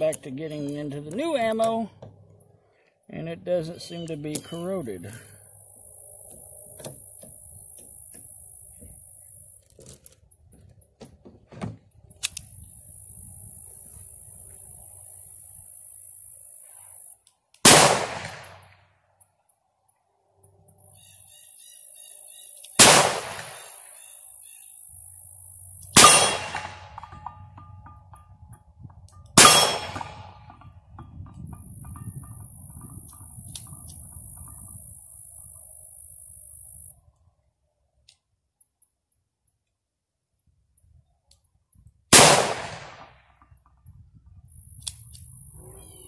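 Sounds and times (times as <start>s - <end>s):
revolver gunshots: 17.6s - 18.7s, 22.8s - 23.8s, 25.9s - 27.2s, 29.4s - 30.5s, 42.1s - 43.2s.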